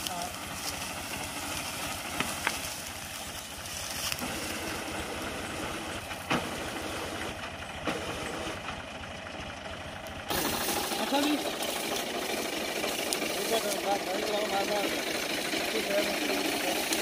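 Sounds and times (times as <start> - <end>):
diesel tractor engine running: 0.0 - 17.0
machinery clicks: 10.0 - 17.0.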